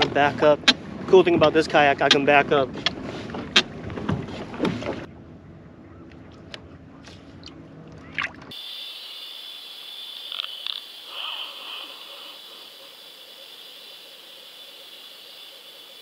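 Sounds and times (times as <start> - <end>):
water sloshing around hull: 0.0 - 8.5
underwater hiss: 8.5 - 16.0.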